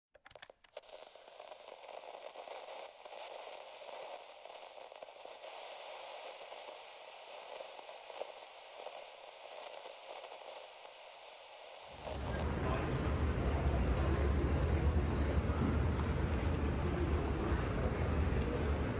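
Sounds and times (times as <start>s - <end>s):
clicks: 0.1s - 1.0s
crackling static hiss: 0.2s - 13.5s.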